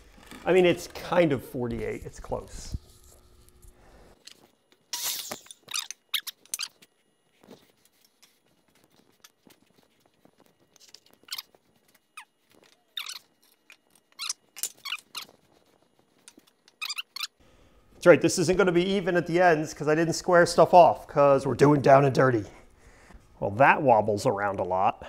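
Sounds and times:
wooden boards squeaking: 16.7s - 17.4s.

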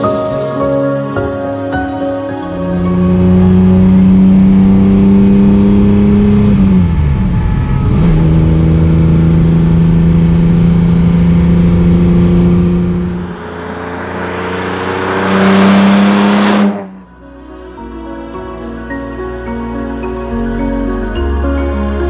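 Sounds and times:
car approaching with tyre noise: 2.5s - 17.4s
car engine heard from inside cabin: 2.6s - 16.8s.

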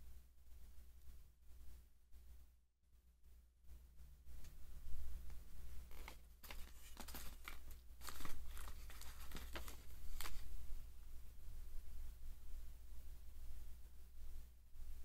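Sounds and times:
paper crinkling and rustling: 5.7s - 10.6s.

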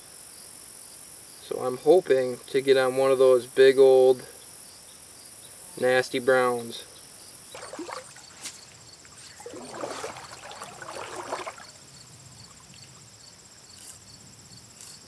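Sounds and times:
insects trilling and chirping: 0.0s - 15.0s
water sloshing around wading legs: 7.5s - 12.0s.

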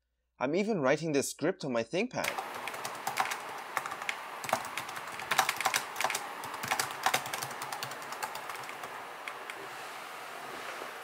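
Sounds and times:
laptop keyboard typing: 2.2s - 9.6s.

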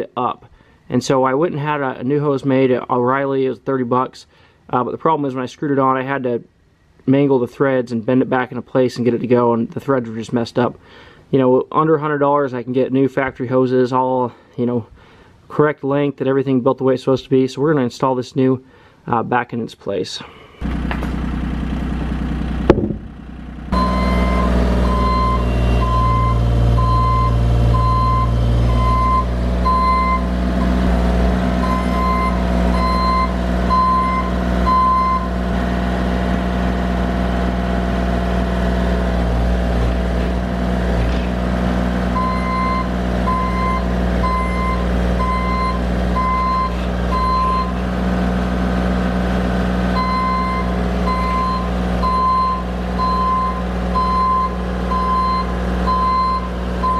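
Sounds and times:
excavator diesel engine under load: 20.6s - 56.9s
travel alarm beeping: 23.8s - 30.9s, 31.6s - 35.4s, 42.2s - 47.8s, 50.0s - 56.9s.

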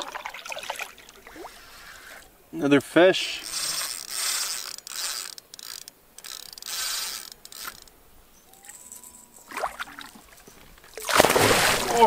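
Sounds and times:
fishing reel gears whirring: 3.2s - 7.9s
fish splashing: 11.0s - 12.0s.

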